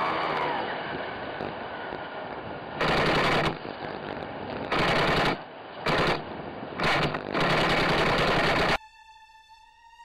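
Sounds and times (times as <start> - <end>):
automatic gunfire: 4.7 - 6.2, 6.8 - 8.8.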